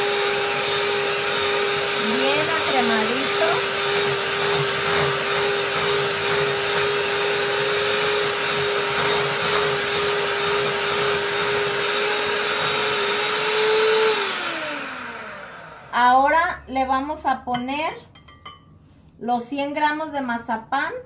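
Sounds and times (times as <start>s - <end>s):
electric hand mixer running: 0.0s - 16.2s.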